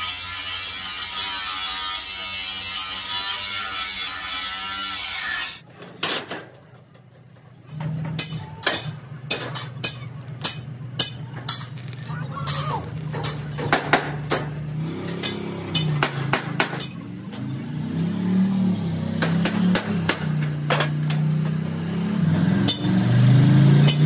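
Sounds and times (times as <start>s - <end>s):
angle grinder grinding steel: 0.0s - 5.6s, 10.4s - 16.6s, 22.2s - 24.0s
sharp metal knocks: 13.0s - 17.0s, 19.1s - 21.6s.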